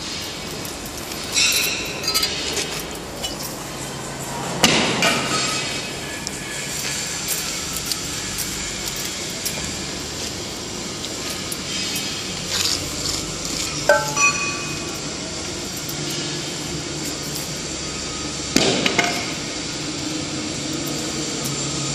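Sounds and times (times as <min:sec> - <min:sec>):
steady machinery hum: 0:00.0 - 0:21.9
metallic knocks and clinks: 0:13.9 - 0:15.1.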